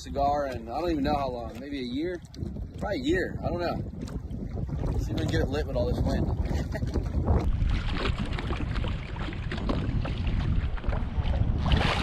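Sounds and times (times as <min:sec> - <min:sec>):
water lapping against boat hull: 0:00.0 - 0:12.0
wind buffeting microphone: 0:00.0 - 0:12.0
water splash: 0:06.8 - 0:12.0.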